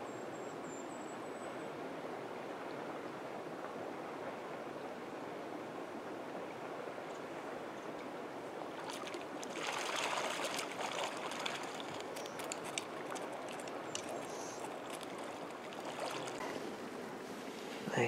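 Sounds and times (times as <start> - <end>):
stream flowing: 1.7 - 17.1
fish splashing at surface: 8.8 - 16.4.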